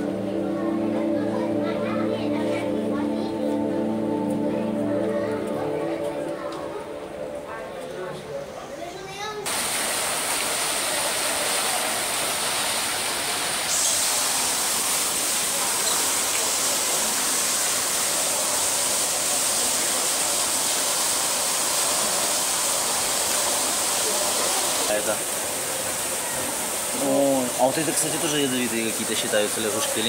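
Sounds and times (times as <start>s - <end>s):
running water hiss: 9.5s - 30.0s.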